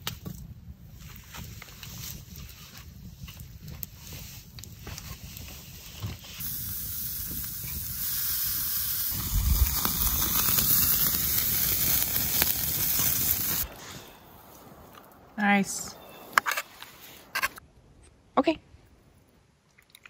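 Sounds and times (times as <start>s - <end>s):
steaks sizzling on grill: 6.4s - 13.7s.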